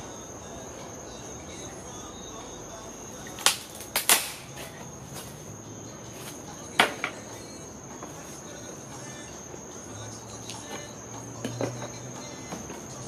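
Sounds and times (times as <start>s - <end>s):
crickets chirring: 0.0s - 13.0s
wood cracking and snapping: 3.4s - 4.6s.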